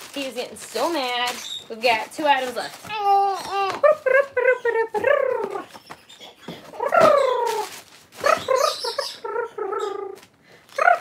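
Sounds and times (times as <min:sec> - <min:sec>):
plastic packaging crinkling: 0:00.0 - 0:04.4, 0:06.7 - 0:09.1
infant fussing and crying: 0:02.9 - 0:04.0.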